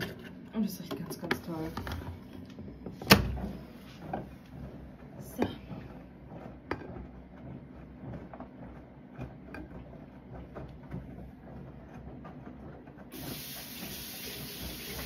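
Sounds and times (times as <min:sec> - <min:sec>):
washing machine tumbling laundry: 0:00.0 - 0:15.0
running water hiss: 0:13.2 - 0:15.0.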